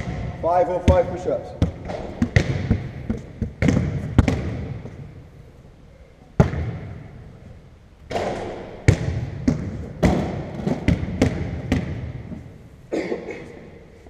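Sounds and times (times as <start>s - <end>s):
basketballs bouncing on wooden floor: 0.0s - 5.1s, 6.4s - 7.0s, 8.1s - 12.4s.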